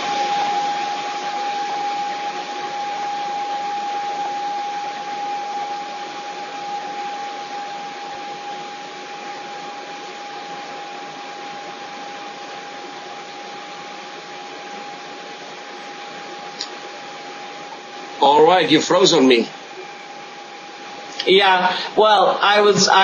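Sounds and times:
held tone: 0:00.0 - 0:10.5
steady hiss: 0:00.0 - 0:23.0.

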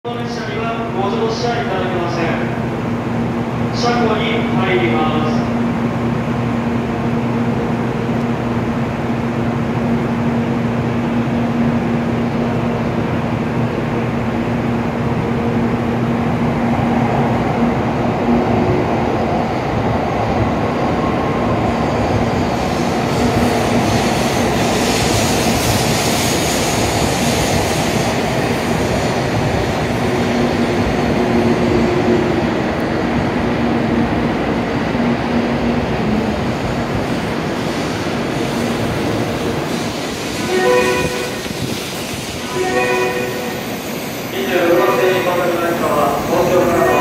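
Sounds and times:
train running rumble: 0:00.1 - 0:47.0
hiss: 0:22.6 - 0:29.2, 0:37.4 - 0:40.5, 0:41.2 - 0:42.5.

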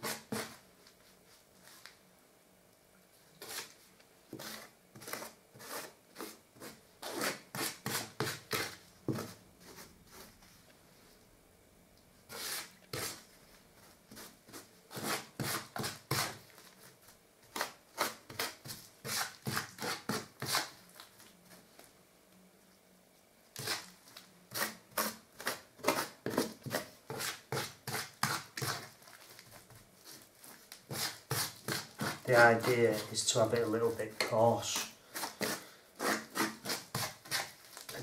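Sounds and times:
blade scraping plaster on board: 0:00.0 - 0:00.6, 0:03.4 - 0:10.3, 0:12.3 - 0:13.3, 0:14.1 - 0:16.9, 0:17.5 - 0:20.8, 0:23.6 - 0:23.9, 0:24.5 - 0:30.2, 0:30.8 - 0:38.0.

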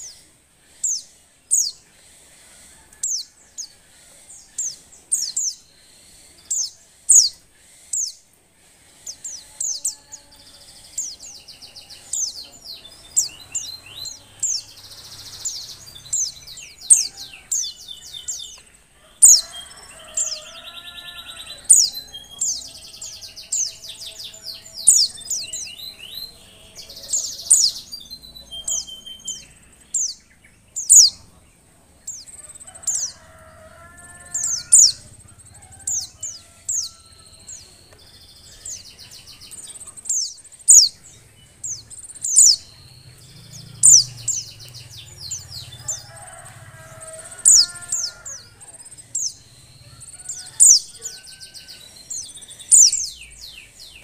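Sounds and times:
bird lower wavering calls: 0:08.9 - 0:31.3, 0:34.1 - 0:54.0
bird high sharp chirps: 0:09.0 - 0:31.2.

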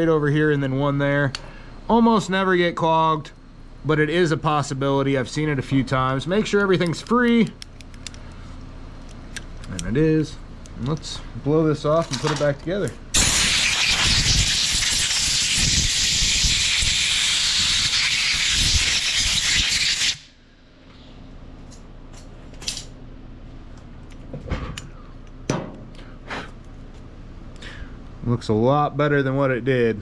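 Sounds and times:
compressed air gun hissing: 0:13.2 - 0:20.3.

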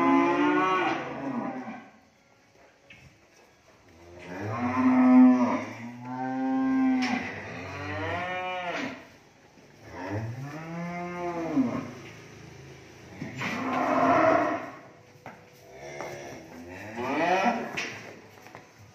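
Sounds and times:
cattle mooing: 0:00.0 - 0:01.9, 0:04.2 - 0:09.1, 0:13.2 - 0:14.9.

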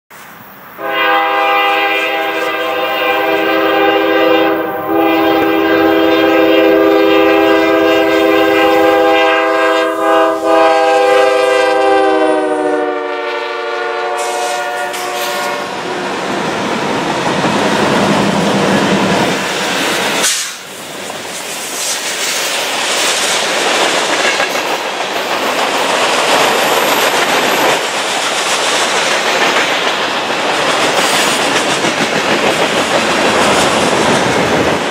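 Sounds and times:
train air horn blasts: 0:00.8 - 0:15.8
train wheels clacking: 0:17.0 - 0:34.9.

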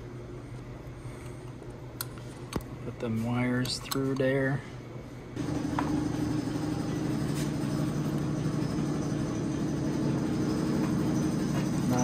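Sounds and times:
motor humming: 0:05.4 - 0:12.0.

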